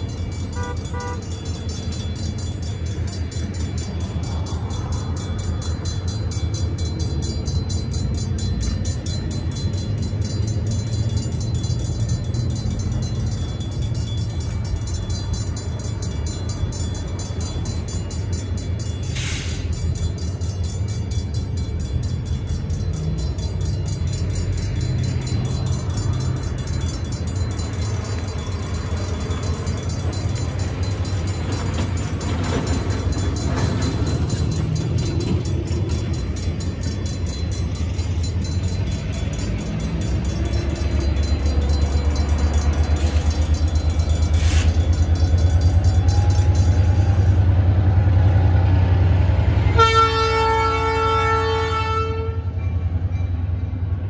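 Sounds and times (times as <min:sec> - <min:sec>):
diesel locomotive engine rumbling: 0:00.0 - 0:54.0
locomotive air horn: 0:00.5 - 0:01.4, 0:49.7 - 0:52.6.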